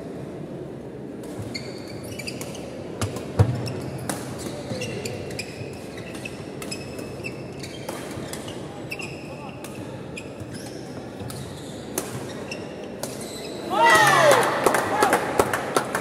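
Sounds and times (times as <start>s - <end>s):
shoes squeaking on wooden court: 1.3s - 13.7s.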